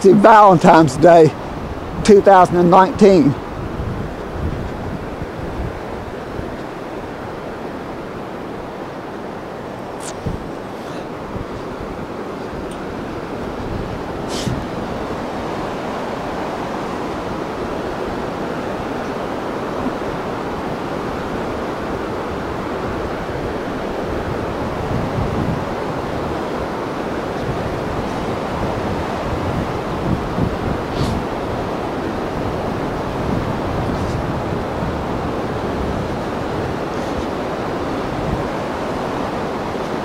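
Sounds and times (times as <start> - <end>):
river rushing: 0.0 - 40.0
wind buffeting microphone: 0.0 - 40.0.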